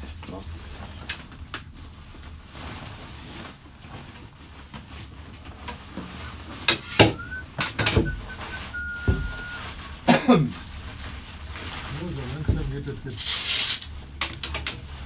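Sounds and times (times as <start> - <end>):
thin steady squeal: 6.2 - 9.7.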